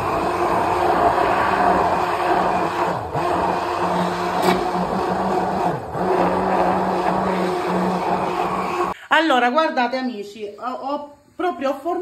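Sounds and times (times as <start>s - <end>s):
immersion blender motor hum: 0.0s - 9.0s.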